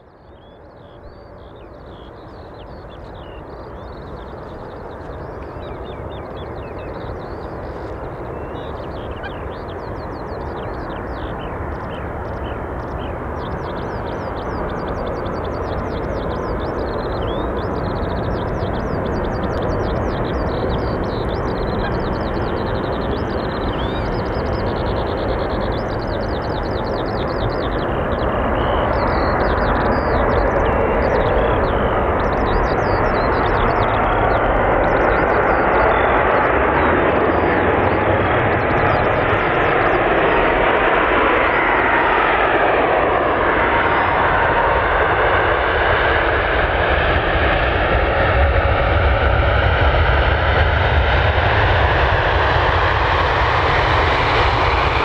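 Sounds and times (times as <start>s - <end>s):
bird chirps: 0.0s - 42.3s
jet engines rumbling: 0.0s - 55.0s.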